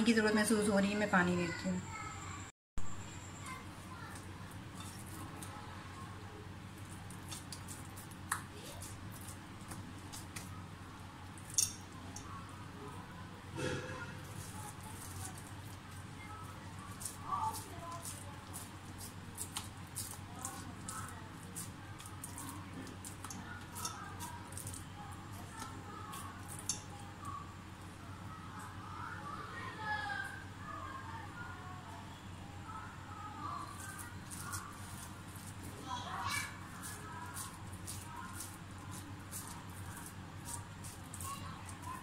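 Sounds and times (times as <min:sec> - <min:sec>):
wet hands patting meat: 0:06.7 - 0:10.6, 0:16.8 - 0:26.7.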